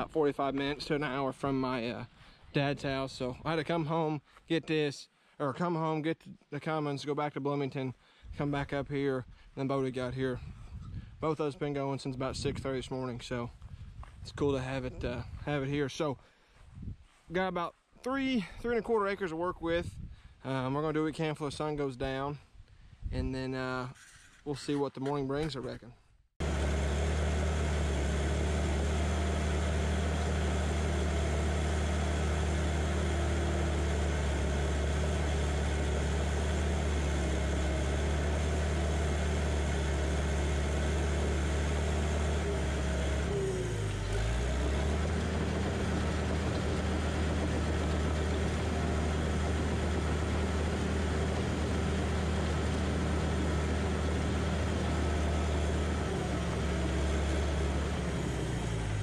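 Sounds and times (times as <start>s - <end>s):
dirt being pushed: 26.4s - 58.5s
dozer diesel engine under load: 26.4s - 59.0s.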